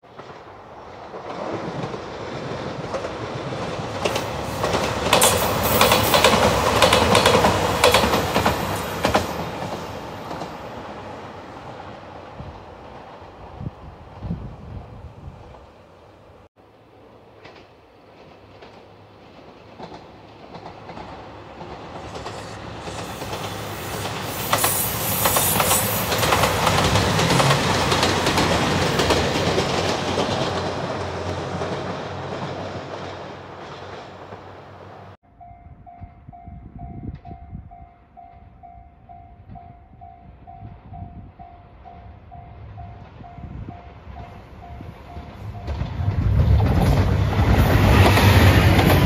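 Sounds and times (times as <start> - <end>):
diesel train passing: 0.0 - 49.0.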